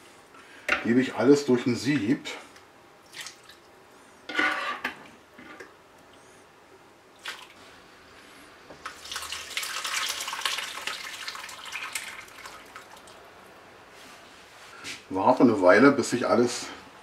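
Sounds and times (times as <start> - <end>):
sauce splashing through sieve: 3.1 - 3.7, 7.2 - 7.6, 8.8 - 13.3.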